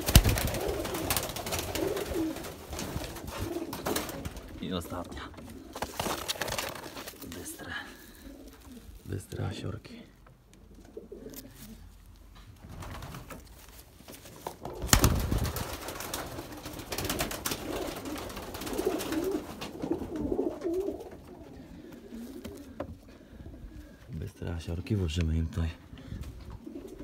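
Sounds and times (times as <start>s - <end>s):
loud flurry of rustling: 0.0s - 4.6s, 5.8s - 7.4s, 12.6s - 20.8s
pigeons cooing: 0.0s - 9.1s, 10.4s - 12.2s, 14.5s - 24.2s, 26.0s - 27.0s.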